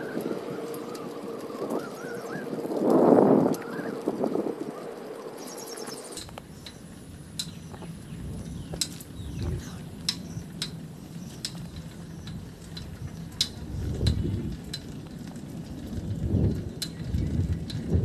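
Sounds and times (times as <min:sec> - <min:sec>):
bicycle clicks and rattles: 0:00.0 - 0:18.0
low rumble of riding: 0:00.0 - 0:18.0.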